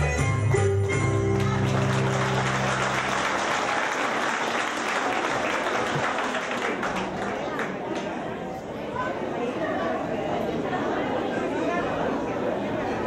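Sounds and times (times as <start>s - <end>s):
folk dance music: 0.0s - 5.2s
audience applauding: 1.2s - 8.2s.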